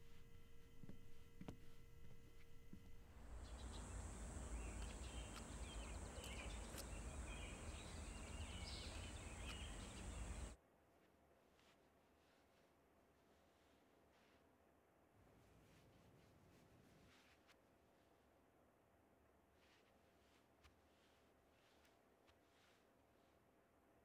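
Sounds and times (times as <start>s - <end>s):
faint indoor hum: 0.0s - 24.0s
birds chirping: 3.2s - 10.6s
soft clicks: 3.6s - 10.6s.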